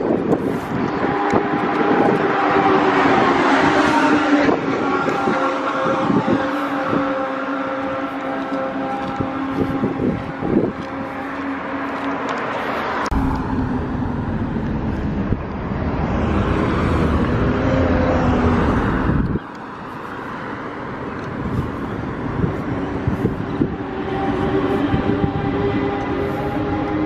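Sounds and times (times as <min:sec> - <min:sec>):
cars driving past: 0:00.0 - 0:27.0
heavy low rumble: 0:13.0 - 0:19.4.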